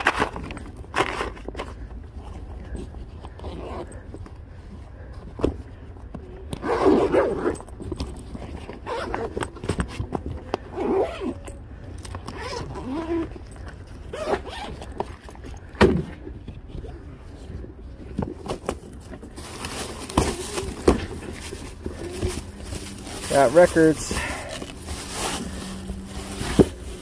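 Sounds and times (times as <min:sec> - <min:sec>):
suitcase zippers being pulled: 0:03.3 - 0:04.0, 0:06.5 - 0:11.5, 0:12.2 - 0:15.0
bag knocks and clicks: 0:18.2 - 0:27.0.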